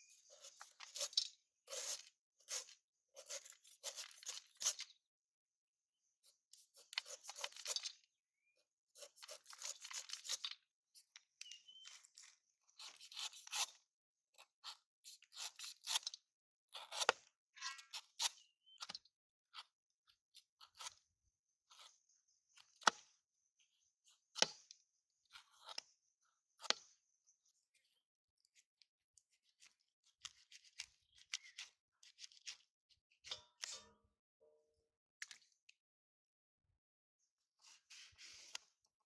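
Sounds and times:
knife scraping fruit rind: 0.0 - 5.0, 6.6 - 8.0, 9.0 - 10.6, 11.8 - 19.7, 29.2 - 33.9.

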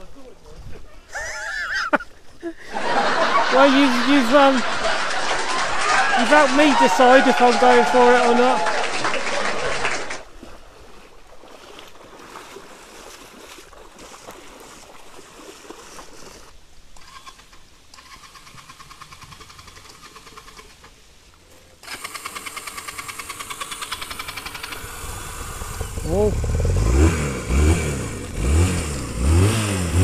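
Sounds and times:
motorcycle engine idling: 22.1 - 30.0.

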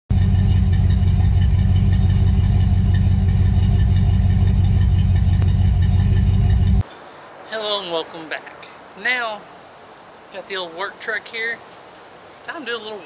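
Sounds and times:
car engine idling: 0.1 - 6.8.

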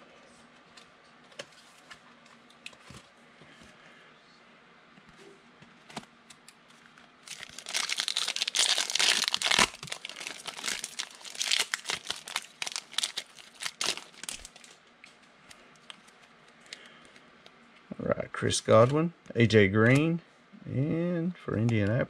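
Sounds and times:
foil wrapper crinkling: 7.2 - 14.8.

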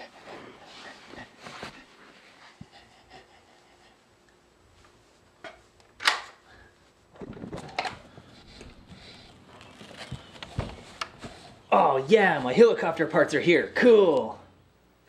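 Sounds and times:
rustling: 6.8 - 12.6.

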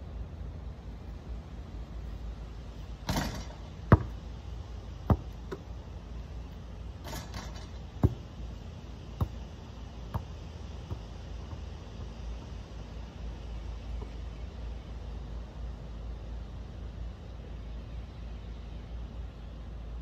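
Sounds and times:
basketball hitting hoop: 3.0 - 4.2, 5.1 - 5.7, 7.0 - 8.4
basketball bouncing on hard ground: 3.0 - 4.4, 5.0 - 5.8, 7.0 - 13.1.

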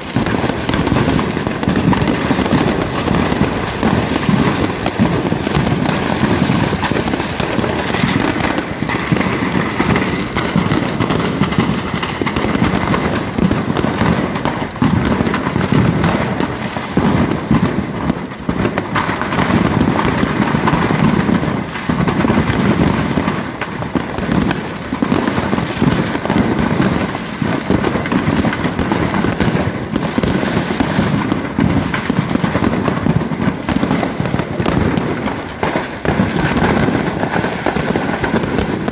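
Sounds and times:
fire crackling: 0.0 - 38.9
fireworks bangs: 0.0 - 38.9.

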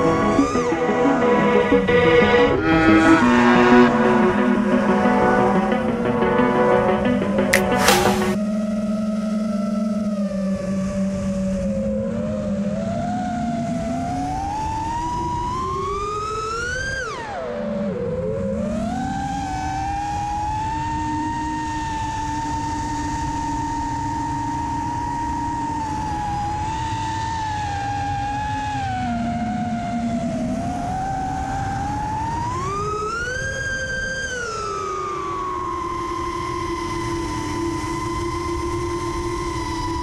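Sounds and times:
wind rushing: 7.4 - 8.4.

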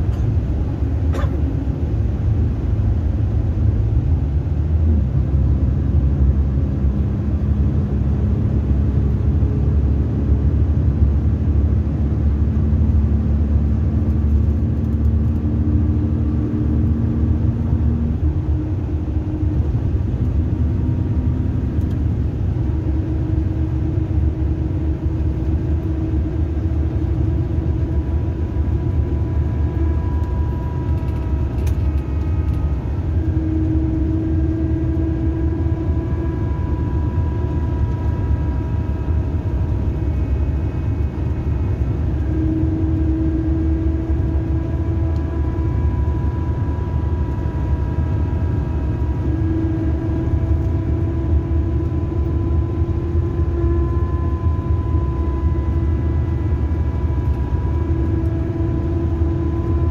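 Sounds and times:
engine and road rumble: 0.0 - 59.9
faint whining tones: 16.0 - 59.9.

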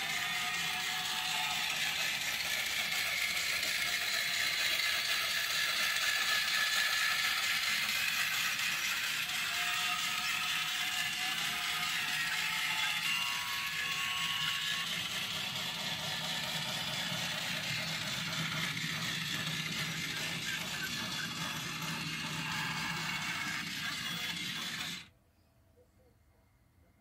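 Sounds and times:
whirring gear and ratchet clatter: 0.0 - 25.1.

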